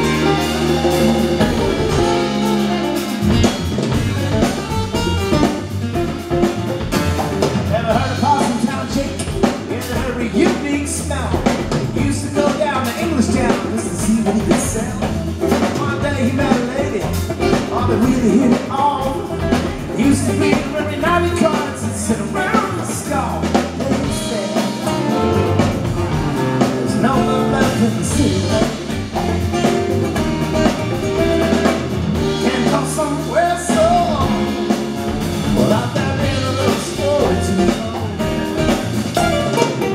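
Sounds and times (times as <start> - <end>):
hand drums: 0.0 - 10.6, 33.7 - 39.9
acoustic guitars strumming: 0.0 - 11.2, 11.8 - 39.9
electric bass: 0.0 - 39.9
man singing: 7.6 - 29.8, 30.5 - 39.9.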